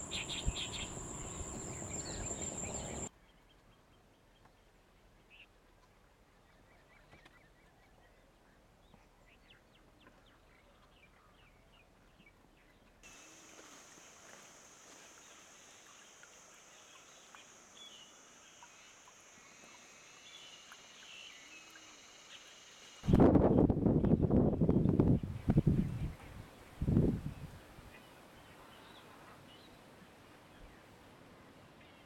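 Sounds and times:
bird-like calls: 0.0 - 3.1
faint chirps: 0.0 - 3.1, 13.1 - 23.0
high-pitched whine: 0.0 - 3.1.

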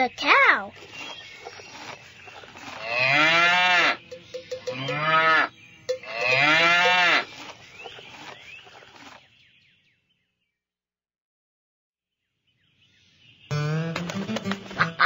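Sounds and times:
cow mooing: 2.8 - 4.0, 4.7 - 7.3.

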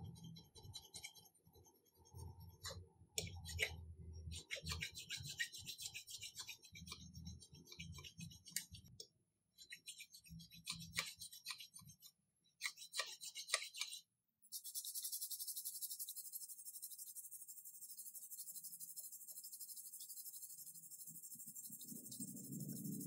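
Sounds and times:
file rasping on metal: 0.0 - 8.9, 9.6 - 14.0.

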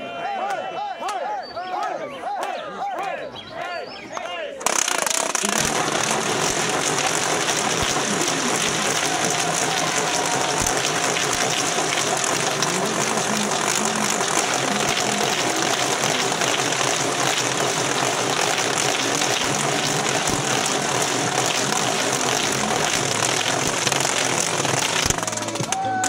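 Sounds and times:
crowd voices talking: 0.0 - 26.0.

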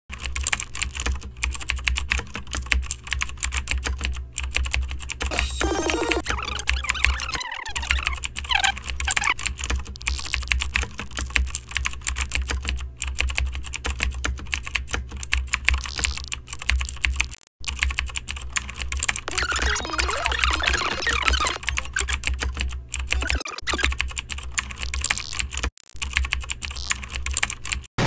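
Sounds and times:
fast keyboard typing: 0.1 - 27.9.

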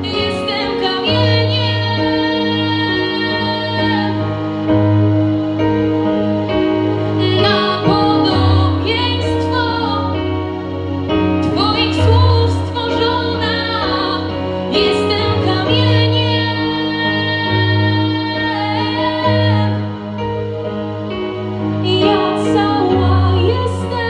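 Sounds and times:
woman singing a slow ballad: 0.0 - 4.3, 7.2 - 10.3, 11.4 - 20.0, 21.8 - 24.0
sustained chords and bass: 0.0 - 24.0.

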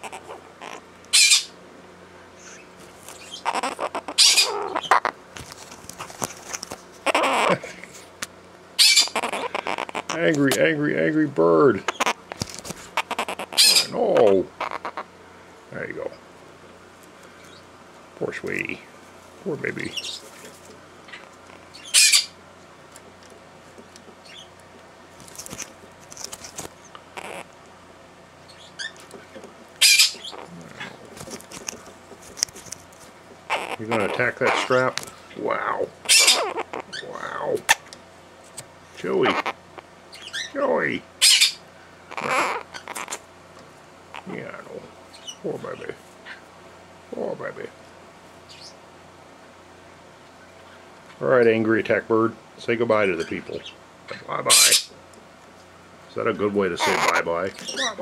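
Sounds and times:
parrot squawking harshly: 0.0 - 1.6, 3.2 - 5.2, 7.0 - 7.6, 8.8 - 10.3, 11.8 - 15.1, 21.5 - 22.4, 27.1 - 27.5, 29.8 - 31.0, 33.5 - 34.9, 35.6 - 37.8, 39.2 - 40.6, 41.2 - 43.2, 54.5 - 55.0, 56.8 - 58.0.

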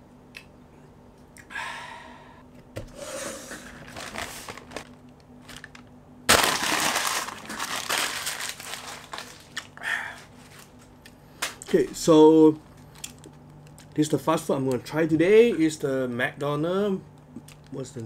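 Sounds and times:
paper bag crinkling: 3.6 - 9.8.

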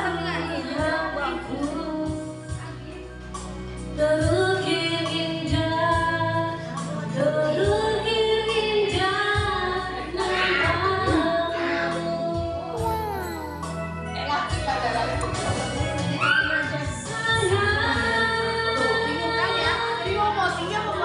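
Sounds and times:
woman singing karaoke: 0.0 - 2.5, 4.0 - 13.7.

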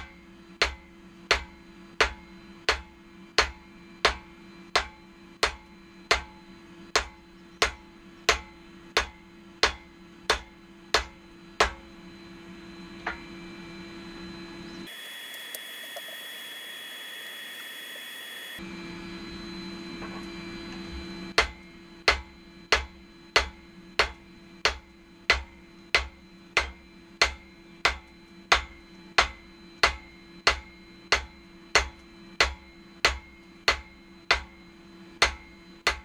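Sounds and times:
hammer striking metal on anvil: 0.0 - 12.0, 21.3 - 34.6, 35.2 - 36.0
steady hum: 0.0 - 36.0
hiss with high whine: 13.9 - 21.3.

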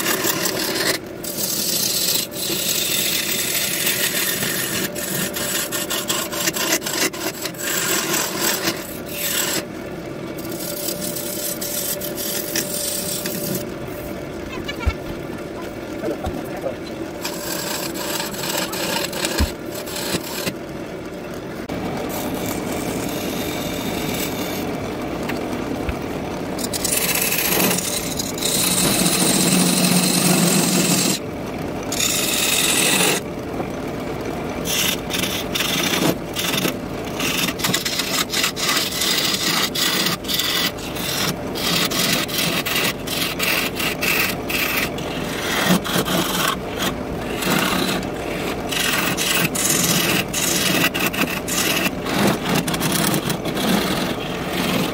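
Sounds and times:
gouge cutting wood on a lathe: 0.0 - 14.1, 16.9 - 20.6, 21.6 - 25.4, 26.6 - 31.2, 31.8 - 33.2, 34.6 - 54.9.

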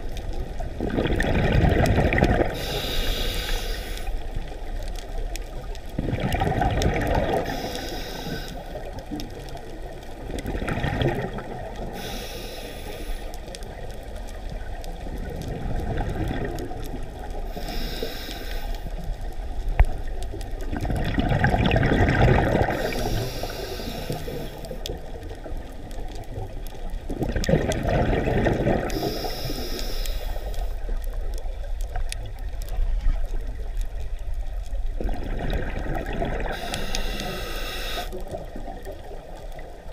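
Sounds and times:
exhaled bubbles gurgling: 0.0 - 39.9
regulator inhale hiss: 2.5 - 4.4, 7.4 - 8.9, 11.8 - 13.6, 17.4 - 19.0, 22.6 - 24.8, 28.8 - 31.0, 36.4 - 38.3.

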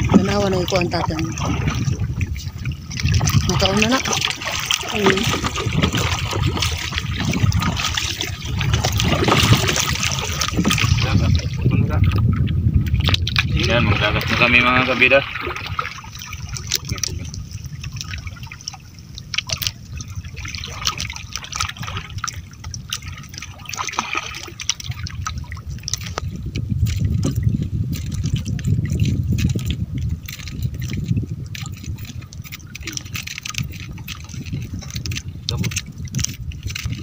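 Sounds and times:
low rumble: 0.0 - 21.1
water splashing against boat: 0.0 - 37.0.

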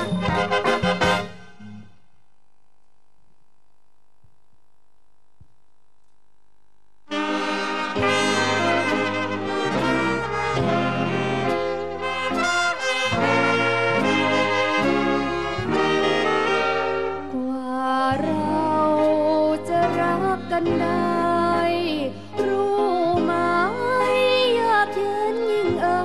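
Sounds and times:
big band playing: 0.0 - 1.7, 7.1 - 17.4.

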